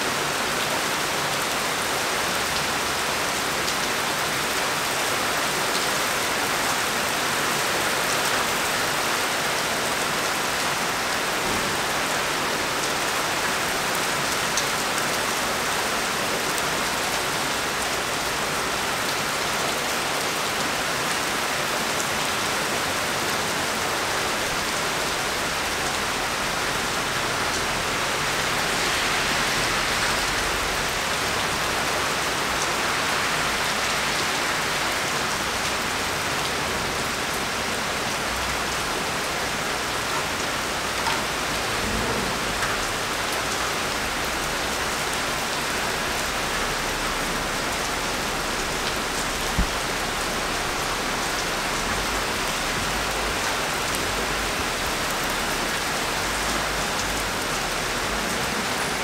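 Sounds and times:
steady rain hiss: 0:00.0 - 0:59.0
sharp rain ticks: 0:23.3 - 0:59.0.

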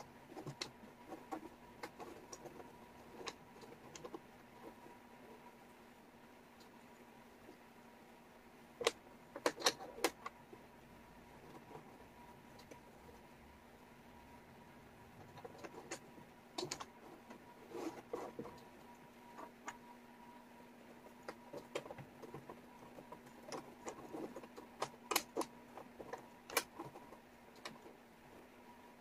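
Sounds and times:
faint steady hum: 0:00.0 - 0:29.0
wooden puzzle pieces clicking: 0:21.2 - 0:27.9.

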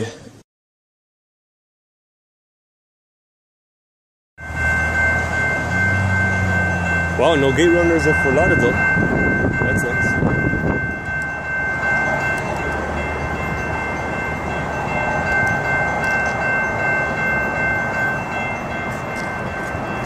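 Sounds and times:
crossing warning bell ringing: 0:04.4 - 0:20.0.

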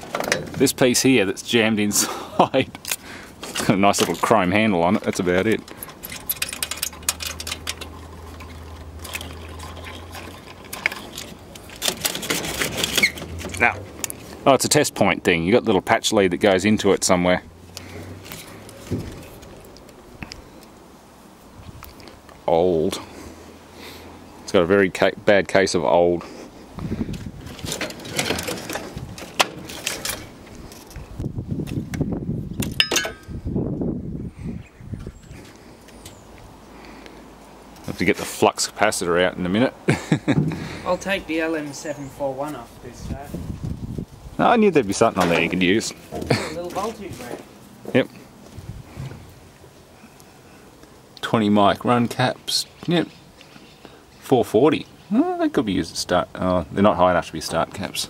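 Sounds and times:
wiring and metal frame rustling: 0:00.0 - 0:01.9, 0:02.6 - 0:14.8, 0:17.7 - 0:20.4, 0:26.6 - 0:33.9, 0:40.2 - 0:49.6.

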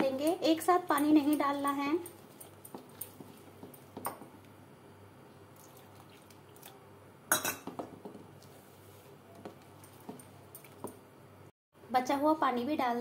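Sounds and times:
spoon stirring batter in bowl: 0:00.0 - 0:04.6, 0:07.6 - 0:11.1
spoon clinking on metal bowl: 0:07.3 - 0:07.7.

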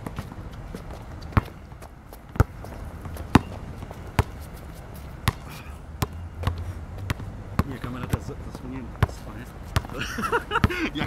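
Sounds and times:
basketball bouncing on stone: 0:01.2 - 0:04.4, 0:05.2 - 0:08.3, 0:09.0 - 0:10.0.

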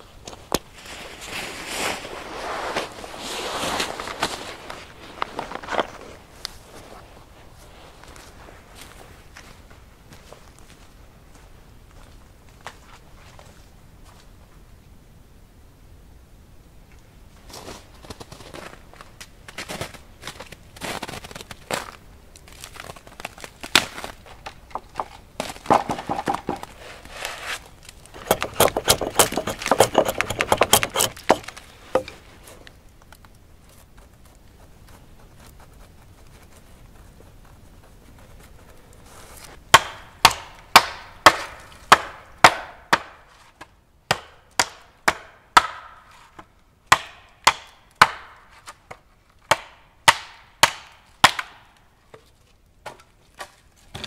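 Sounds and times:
footsteps crunching through snow: 0:00.2 - 0:14.3, 0:17.4 - 0:24.4
hatchet chopping into tree: 0:28.2 - 0:32.1, 0:39.8 - 0:43.2, 0:44.1 - 0:46.0, 0:46.9 - 0:48.4, 0:49.5 - 0:51.6.

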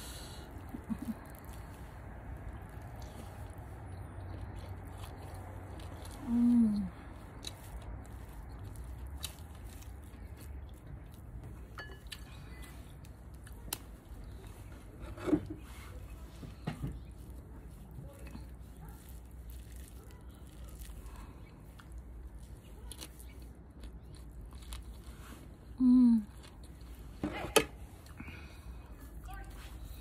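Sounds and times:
low background hum: 0:00.0 - 0:30.0
person chewing food: 0:00.0 - 0:30.0
person humming mmm: 0:06.2 - 0:06.9, 0:25.8 - 0:26.3.

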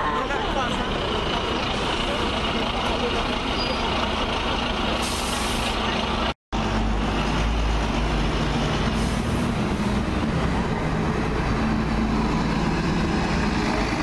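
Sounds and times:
bus engine: 0:00.0 - 0:14.0
short high air hiss: 0:05.0 - 0:05.8.

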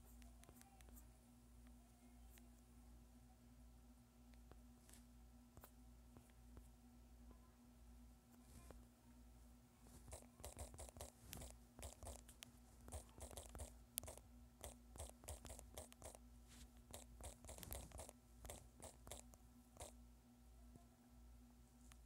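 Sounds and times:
faint steady hum: 0:00.0 - 0:22.0
fingertips tapping touchscreen: 0:10.0 - 0:16.2, 0:16.8 - 0:19.9.

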